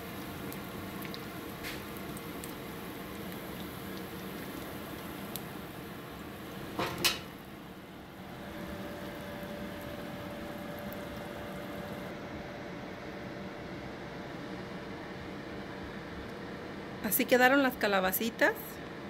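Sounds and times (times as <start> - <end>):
food frying in hot oil: 0.0 - 12.1.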